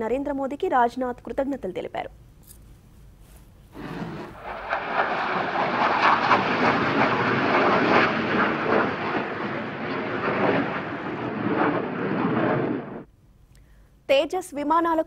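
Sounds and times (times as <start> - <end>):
jet engine roar: 3.8 - 13.1.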